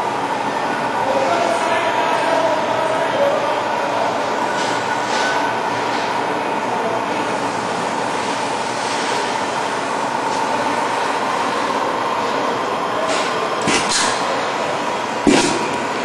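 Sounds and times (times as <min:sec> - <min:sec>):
machine humming: 0:13.5 - 0:16.0.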